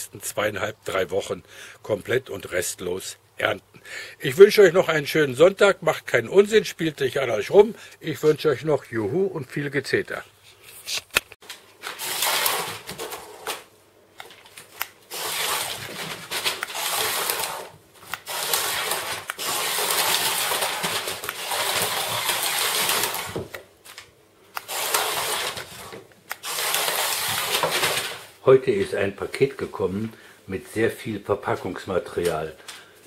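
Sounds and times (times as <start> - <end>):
toy car whirring through plastic tubes: 12.0 - 13.4, 15.1 - 23.5, 24.6 - 28.2.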